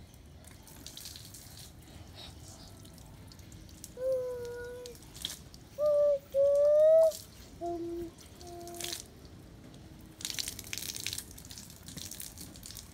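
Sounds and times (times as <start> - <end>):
rain dripping on wet concrete: 0.1 - 1.8, 2.8 - 5.8, 8.4 - 12.9.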